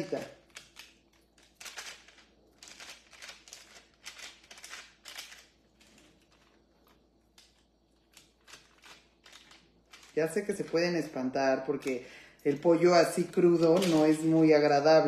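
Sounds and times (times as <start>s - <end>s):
paper crinkle: 0.0s - 10.3s.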